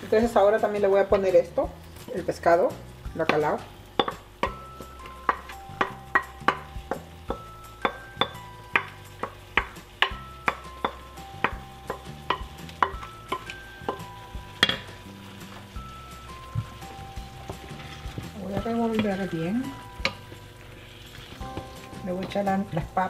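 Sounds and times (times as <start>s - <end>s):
soft plucked background music: 0.0s - 23.0s.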